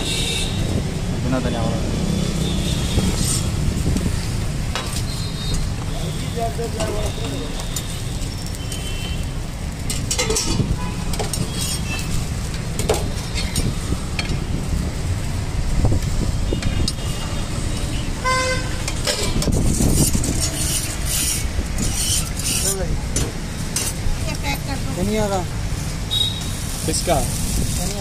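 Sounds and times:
vehicle horn tooting: 0:00.0 - 0:00.6, 0:05.1 - 0:09.3, 0:16.5 - 0:18.9, 0:26.1 - 0:26.5
roadside traffic rumble: 0:00.0 - 0:28.0
metal spatula scraping griddle: 0:09.8 - 0:12.2, 0:18.8 - 0:22.8.

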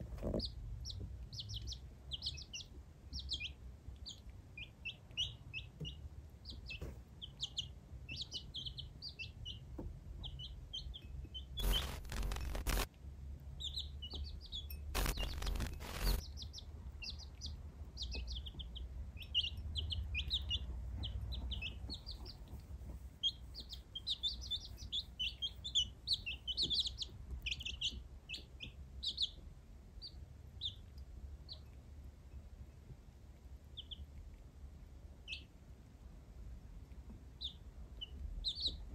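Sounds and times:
baby chicks peeping: 0:00.0 - 0:38.9
loud burst of noise: 0:11.6 - 0:12.9, 0:15.0 - 0:16.2.

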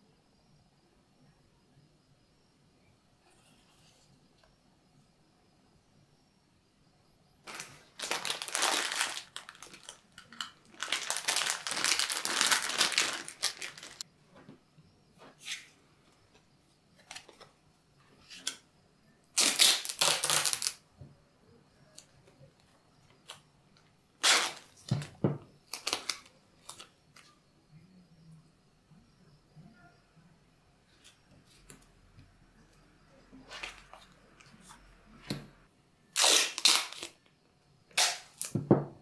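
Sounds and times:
tape tearing and crinkling: 0:07.5 - 0:14.0, 0:19.4 - 0:20.8, 0:24.2 - 0:25.1, 0:25.7 - 0:26.8, 0:36.2 - 0:37.2, 0:37.9 - 0:38.6.

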